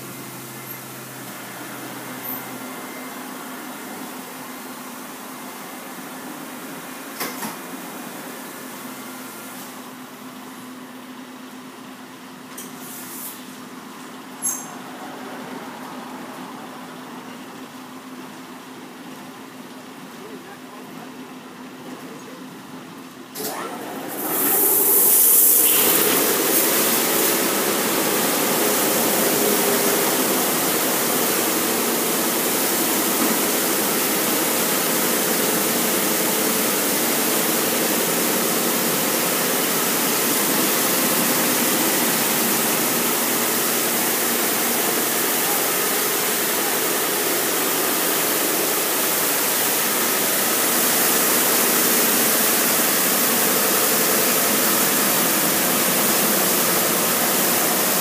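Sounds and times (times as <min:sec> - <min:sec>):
water jets spraying: 0:23.8 - 0:58.0.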